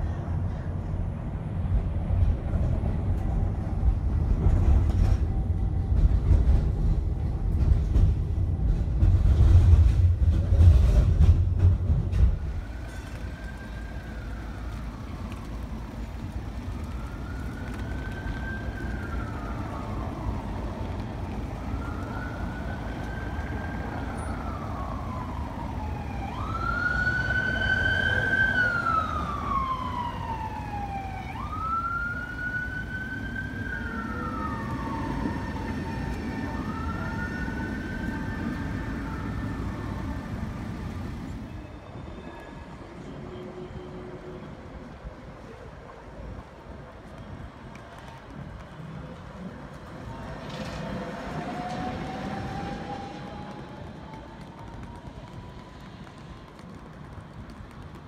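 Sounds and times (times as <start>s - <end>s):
tram rumbling: 0.0s - 58.0s
ambulance siren wailing: 12.6s - 43.9s, 49.9s - 57.0s.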